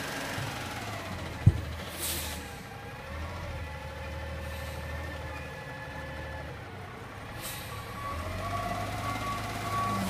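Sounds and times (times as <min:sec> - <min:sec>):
garbage truck engine idling: 0:00.0 - 0:09.9
air brake hiss: 0:01.9 - 0:02.5, 0:07.4 - 0:07.9.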